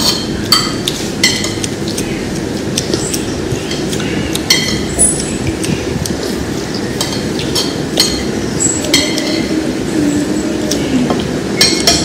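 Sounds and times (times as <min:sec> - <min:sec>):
steady low hum: 0:00.0 - 0:12.0
tableware clinking: 0:04.5 - 0:04.9, 0:07.0 - 0:09.6, 0:11.6 - 0:12.0.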